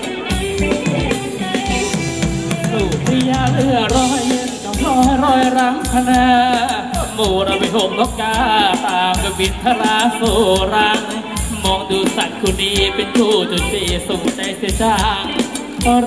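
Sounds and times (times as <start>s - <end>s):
bass drum beat: 0.3s - 16.0s.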